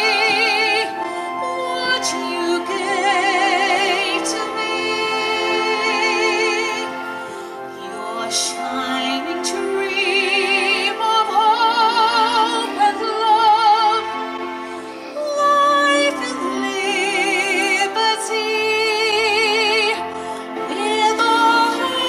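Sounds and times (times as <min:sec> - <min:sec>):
woman singing a slow ballad: 0:00.0 - 0:06.9
instrumental sustained chords: 0:00.0 - 0:22.0.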